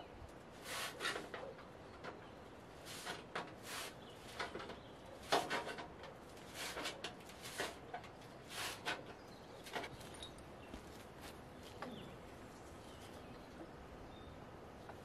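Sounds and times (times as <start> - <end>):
hand tool scraping a board: 0.6 - 1.5, 2.8 - 9.1.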